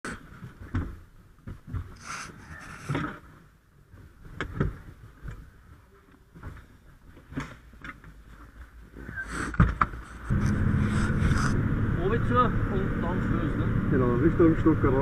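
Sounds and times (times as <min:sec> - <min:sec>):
truck engine starting and running: 0:10.3 - 0:15.0.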